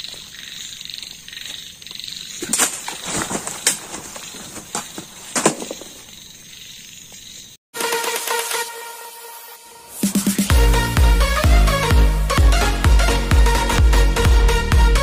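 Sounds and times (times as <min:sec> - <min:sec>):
night insects chirping: 0:00.0 - 0:07.6
sharp clatters and rustles: 0:02.4 - 0:06.1.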